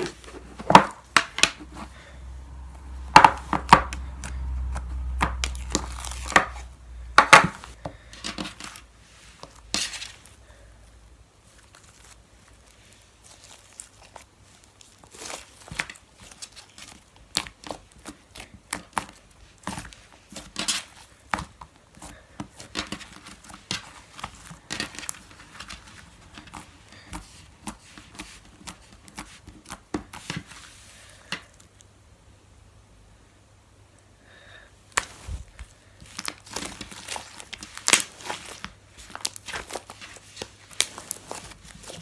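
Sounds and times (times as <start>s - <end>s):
slime squelching and popping: 34.9s - 42.0s.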